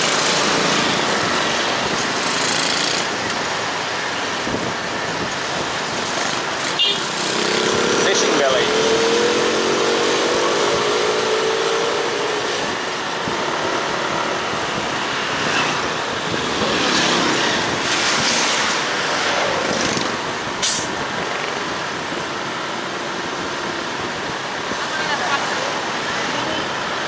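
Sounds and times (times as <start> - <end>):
scooter engine: 0.0 - 4.2
wind and road noise: 0.0 - 27.0.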